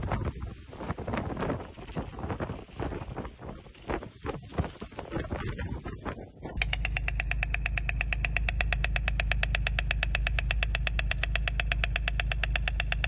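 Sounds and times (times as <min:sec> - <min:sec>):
low steady rumble: 0:04.7 - 0:13.0
stork clattering its bill: 0:06.4 - 0:13.0.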